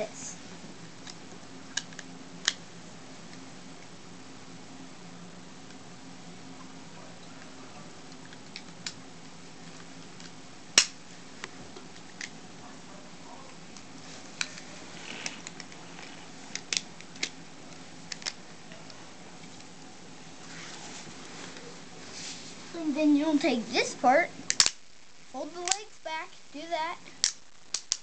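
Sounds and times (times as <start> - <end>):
faint low hum: 0.0 - 28.0
plastic toy parts snapping: 10.2 - 11.0, 16.5 - 17.4, 18.1 - 18.4, 24.5 - 24.8, 27.2 - 28.0.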